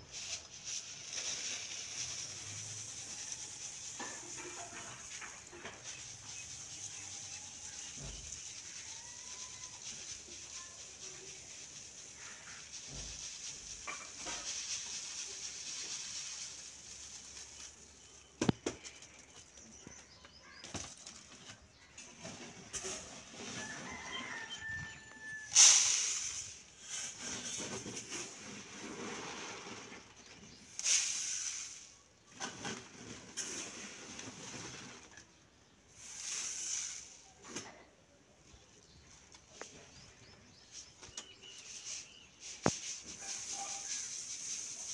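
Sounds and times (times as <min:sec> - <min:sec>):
grain pouring onto cloth: 0:00.0 - 0:18.4, 0:22.9 - 0:32.0, 0:41.7 - 0:44.9.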